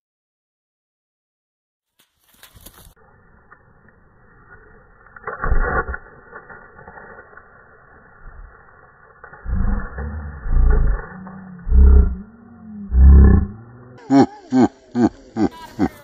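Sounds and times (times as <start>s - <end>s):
low pitch-bending sounds: 3.1s - 15.5s.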